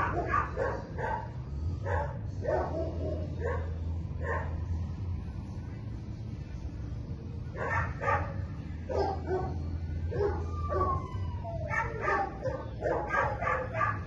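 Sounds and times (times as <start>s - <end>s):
dog barking: 0.0s - 4.6s, 7.6s - 11.0s, 11.7s - 14.0s
low steady hum: 0.0s - 14.0s.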